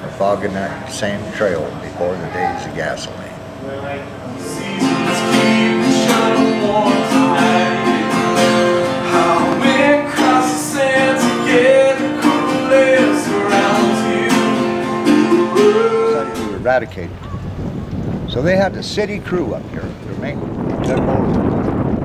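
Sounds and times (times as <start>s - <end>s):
acoustic guitar strumming: 4.3s - 16.8s
person singing: 4.4s - 16.6s.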